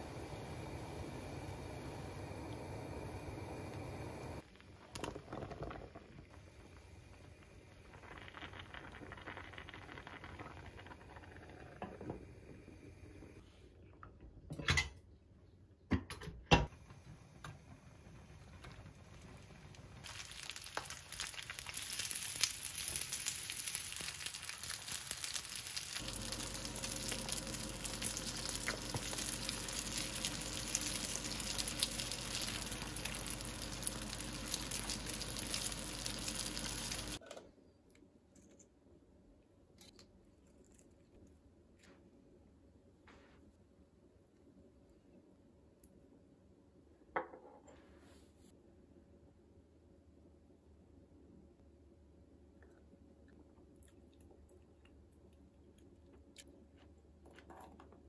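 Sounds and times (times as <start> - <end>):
dumplings sizzling in a pan: 0.0 - 4.5, 16.7 - 37.2.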